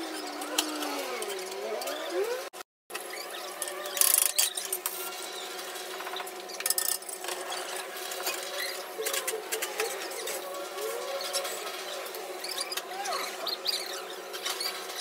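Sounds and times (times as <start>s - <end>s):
clatter of tools and parts: 5.8s - 10.4s.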